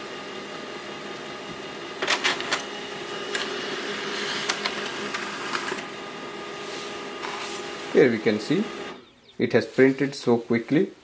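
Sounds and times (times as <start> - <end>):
laser printer humming: 0.0 - 9.2
printer paper-feed clicks: 2.0 - 2.7, 3.3 - 5.9.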